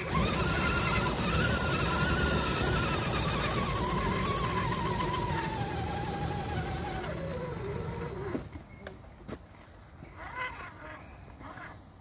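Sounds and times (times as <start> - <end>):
electric motor whining: 0.0 - 8.6
tyres rolling on gravel: 0.0 - 9.8.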